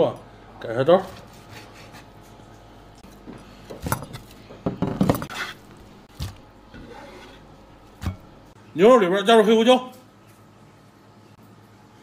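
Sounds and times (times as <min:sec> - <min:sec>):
kitchenware clinking and knocking: 0:03.8 - 0:05.4.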